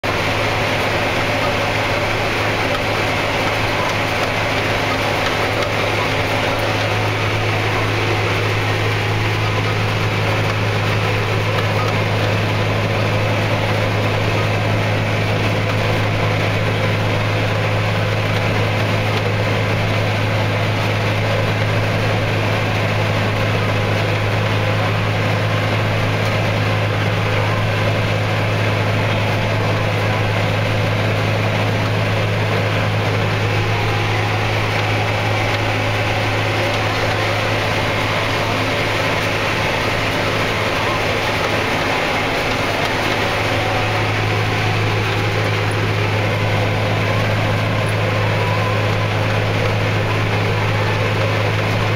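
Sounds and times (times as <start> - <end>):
mower working through crop: 0.0 - 51.9
tractor diesel engine drone: 0.0 - 51.9.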